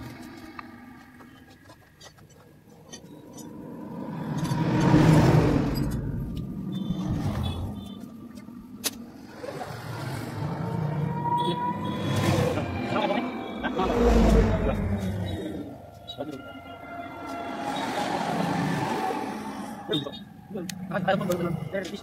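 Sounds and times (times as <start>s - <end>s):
motor vehicle passing by: 3.5s - 8.0s, 9.1s - 15.8s, 17.0s - 22.0s.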